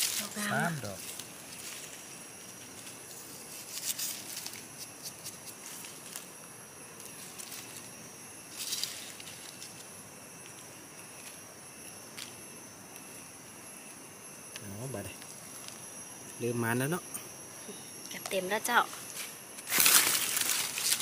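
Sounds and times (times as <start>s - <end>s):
rustling in dry leaves: 0.0s - 6.3s, 7.1s - 7.9s, 8.5s - 9.9s, 19.0s - 21.0s
forest insects droning: 0.0s - 21.0s.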